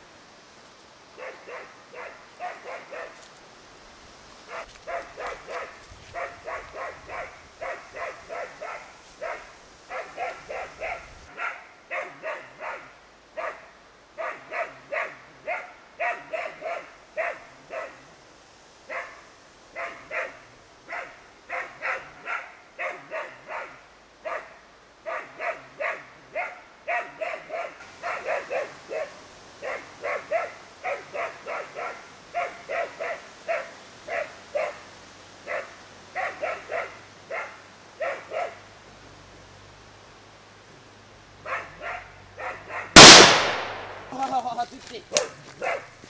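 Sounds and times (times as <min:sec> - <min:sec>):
dog barking: 0:01.2 - 0:03.2, 0:04.5 - 0:18.1, 0:18.9 - 0:34.8, 0:35.4 - 0:38.7, 0:41.4 - 0:43.0, 0:45.6 - 0:45.9.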